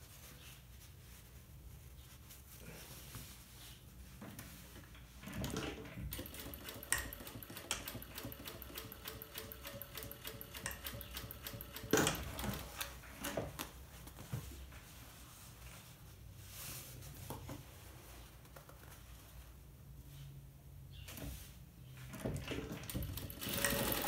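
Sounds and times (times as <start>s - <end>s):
sewing machine stitching: 5.2s - 12.9s, 22.1s - 24.0s.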